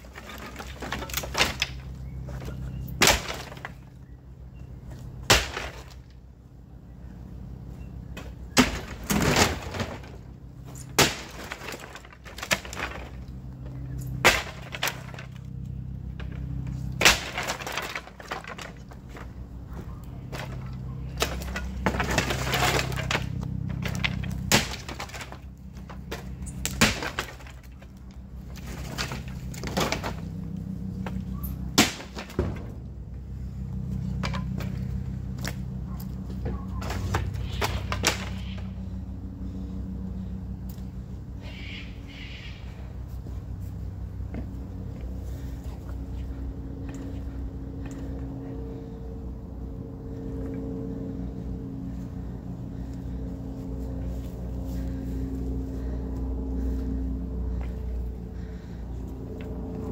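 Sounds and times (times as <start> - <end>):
wood cracking and splintering: 0.0 - 4.0, 5.2 - 6.2, 8.2 - 32.8, 36.3 - 38.6.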